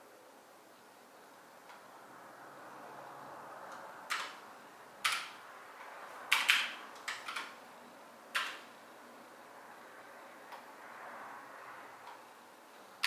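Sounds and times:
low room hiss: 0.0 - 13.0.

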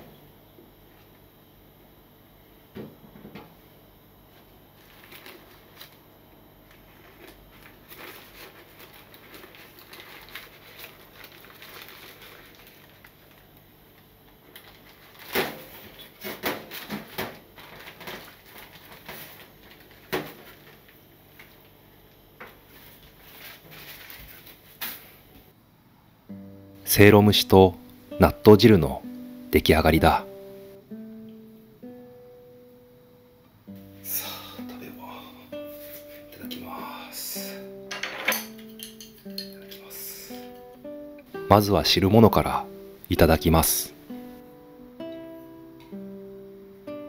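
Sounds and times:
cooking paper crinkling: 4.7 - 21.8, 22.6 - 25.2.

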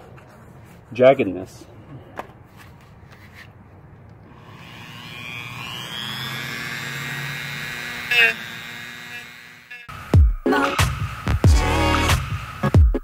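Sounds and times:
rotary tool grinding metal: 4.3 - 9.9.

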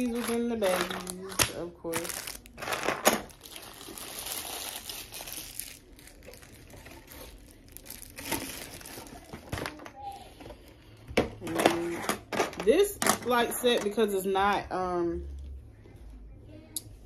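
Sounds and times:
plastic bags crinkling: 0.0 - 10.2.

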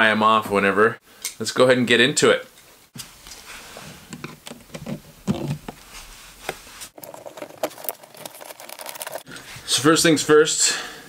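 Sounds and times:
light clicks and rattles of handling: 7.0 - 9.4.

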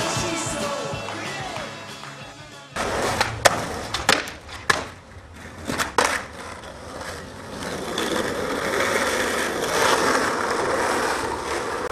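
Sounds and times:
skateboard clacking on asphalt: 2.8 - 11.9
skateboard wheels rolling: 2.8 - 11.9.

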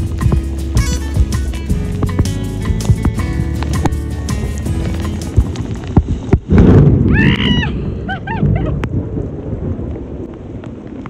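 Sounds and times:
heavy rain on roof: 0.0 - 7.5, 8.3 - 11.0
loud rumble: 0.0 - 10.4
woman squealing: 7.1 - 8.8
woman laughing: 7.5 - 8.8.

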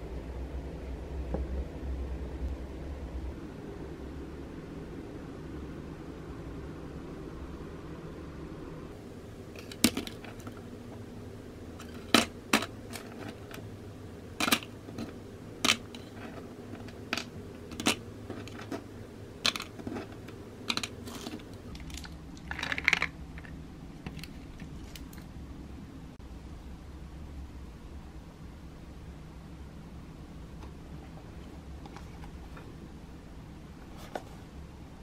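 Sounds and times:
low steady hum: 0.0 - 35.0
plastic toys dropping into box: 9.6 - 10.6, 11.8 - 13.6, 14.4 - 18.8, 19.4 - 23.5.

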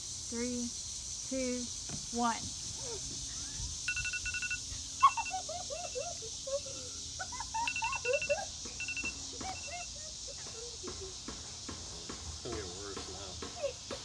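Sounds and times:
steady high hiss: 0.0 - 14.0
short high beeps: 3.9 - 4.7, 8.8 - 9.2.

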